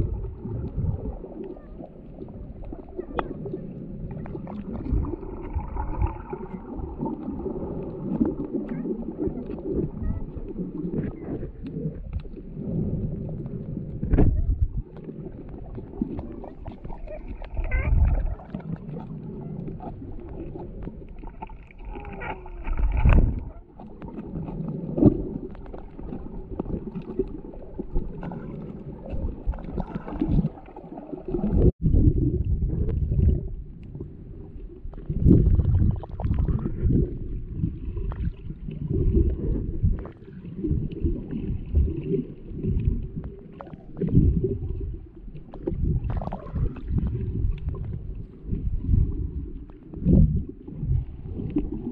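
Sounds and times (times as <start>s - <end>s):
muffled underwater sloshing: 0.0s - 51.9s.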